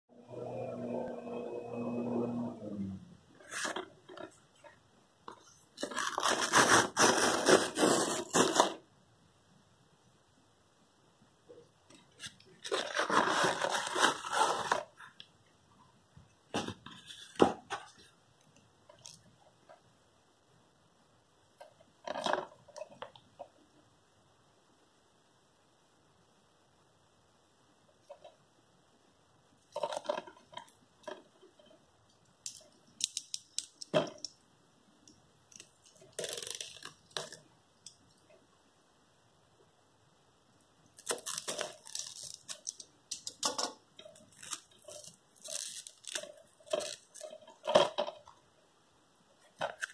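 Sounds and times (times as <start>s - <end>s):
plastic wrap crinkling: 5.4s - 8.8s, 12.0s - 15.2s, 35.6s - 37.4s, 40.9s - 43.4s, 44.1s - 48.2s
cardboard ripping: 5.8s - 8.8s, 12.6s - 14.9s.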